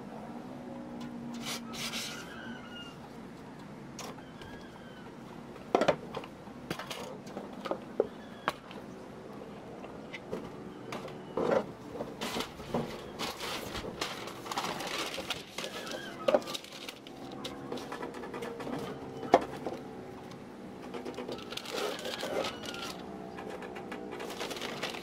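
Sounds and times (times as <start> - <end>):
wrapping paper rustling: 12.2 - 17.9, 21.2 - 23.0, 24.1 - 25.0.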